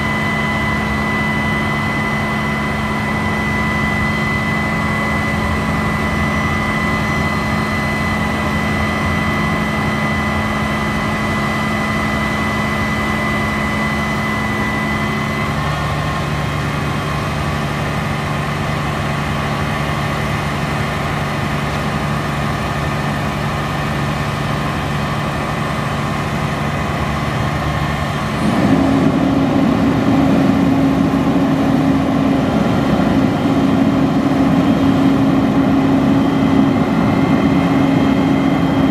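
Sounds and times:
diesel engine running: 0.0 - 38.9
high steady whine: 0.0 - 38.9.

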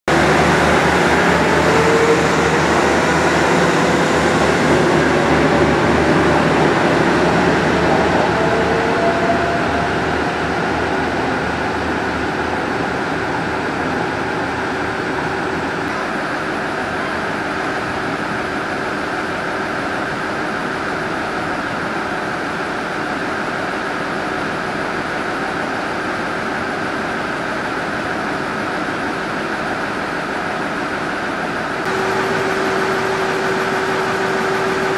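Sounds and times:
faint rising whine: 0.1 - 16.6.

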